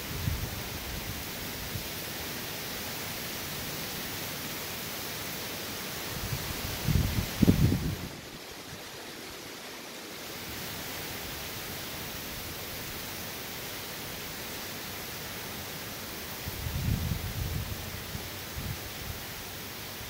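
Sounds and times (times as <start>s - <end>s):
rain and wind hissing: 0.0s - 20.0s
wind gusts buffeting microphone: 6.2s - 8.3s, 16.5s - 19.2s.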